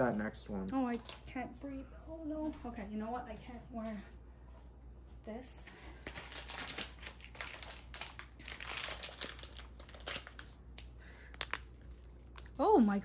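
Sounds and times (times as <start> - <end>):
plastic packaging crinkling: 6.0 - 13.0.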